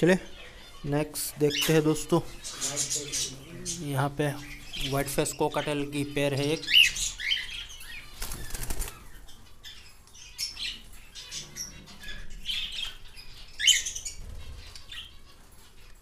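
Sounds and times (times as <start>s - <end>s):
bird chirping calls: 0.0s - 16.0s
birds flapping wings: 8.2s - 9.0s.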